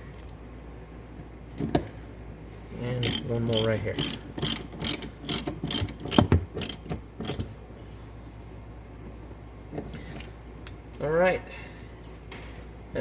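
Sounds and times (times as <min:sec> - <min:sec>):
hand ratchet clicking: 0:03.0 - 0:07.5.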